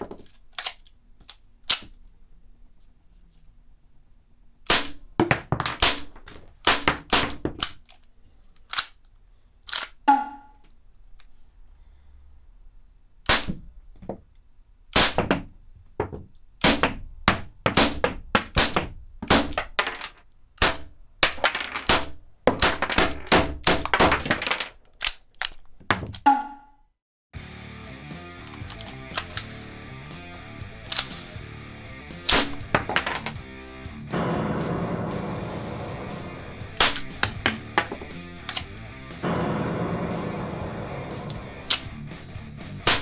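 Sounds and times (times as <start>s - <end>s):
cap gun shots: 32.2s - 33.3s, 36.0s - 42.0s.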